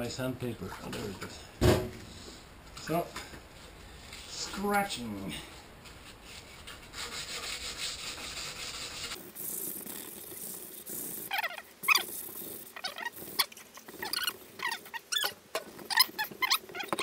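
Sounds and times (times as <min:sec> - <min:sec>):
hand sanding with abrasive pad: 0:05.9 - 0:15.3.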